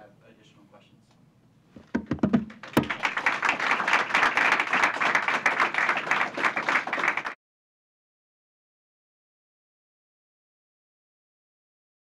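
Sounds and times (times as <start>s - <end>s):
audience applauding: 2.4s - 7.4s.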